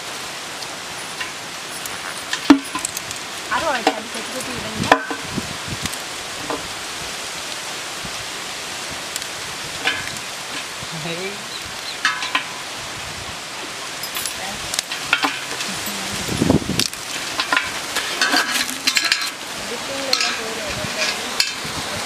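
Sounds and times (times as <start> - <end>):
steady hiss: 0.0 - 22.0
pieces dropping into metal colander: 17.3 - 19.4.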